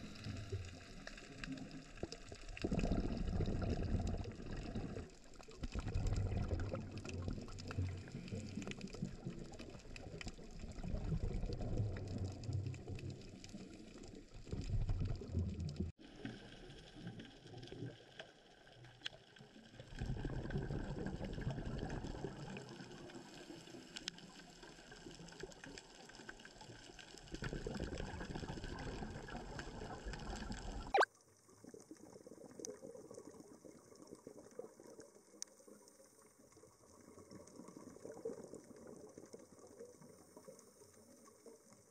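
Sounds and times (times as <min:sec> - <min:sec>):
diver's exhaled bubbles bursting: 0:00.0 - 0:15.9, 0:19.9 - 0:23.0, 0:27.3 - 0:31.1
underwater water hiss: 0:23.0 - 0:24.1.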